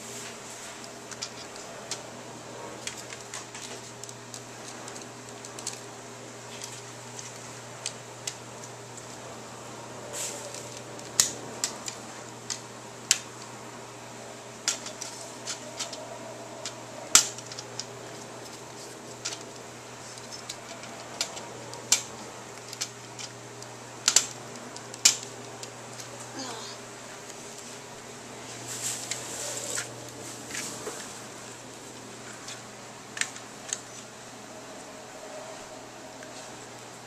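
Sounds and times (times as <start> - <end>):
plastic toy pieces clicking: 2.8 - 5.8, 14.6 - 16.0, 20.0 - 23.3, 24.0 - 25.2.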